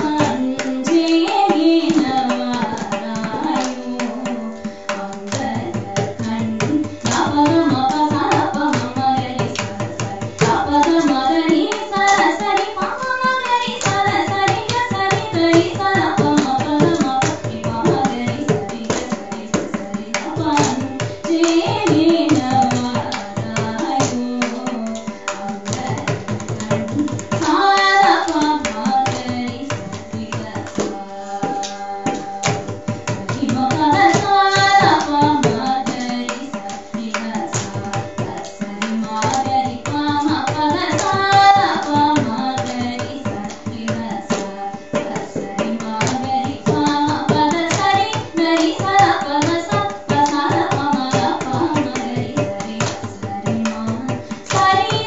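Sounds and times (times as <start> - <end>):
rhythmic percussion strokes: 0.0 - 55.0
woman singing: 0.0 - 55.0.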